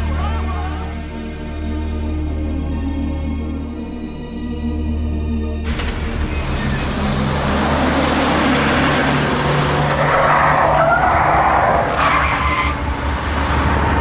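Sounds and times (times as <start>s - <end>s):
tyres skidding: 6.2s - 14.0s
vehicle engine speeding away: 6.7s - 14.0s.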